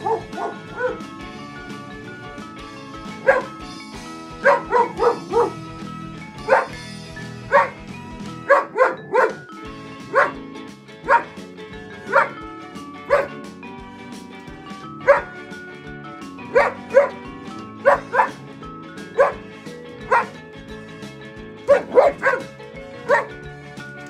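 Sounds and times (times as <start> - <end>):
dog barking: 0.0 - 1.0, 3.2 - 3.6, 4.4 - 5.6, 6.4 - 6.8, 7.5 - 7.8, 8.4 - 9.5, 10.1 - 10.4, 11.0 - 11.4, 12.0 - 12.4, 13.1 - 13.4, 15.0 - 15.4, 16.5 - 17.2, 17.8 - 18.4, 19.2 - 19.4, 20.1 - 20.4, 21.7 - 23.3
background music: 0.0 - 24.0.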